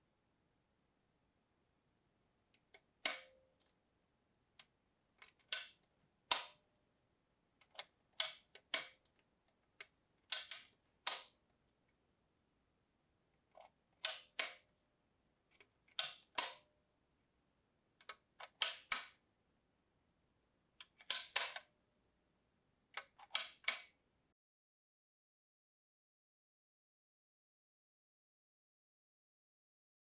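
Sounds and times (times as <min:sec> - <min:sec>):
lantern switch clicking: 0:03.1 - 0:03.4, 0:05.5 - 0:06.6, 0:10.3 - 0:11.3, 0:14.0 - 0:14.6.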